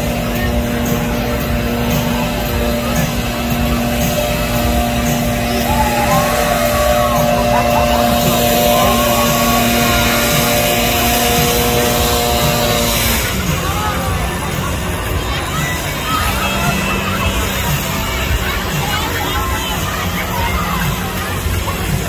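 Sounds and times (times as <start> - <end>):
distant voices calling out: 0.0 - 22.0
steady held tones: 4.1 - 12.6.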